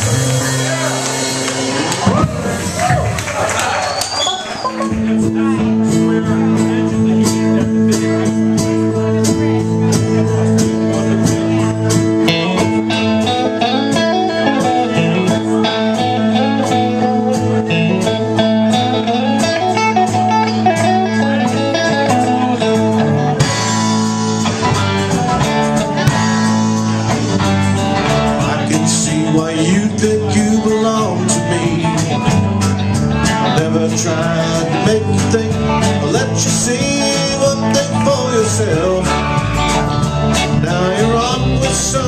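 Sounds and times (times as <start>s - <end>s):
live band playing: 0.0s - 42.0s
drum and cymbal hits: 22.1s - 29.8s.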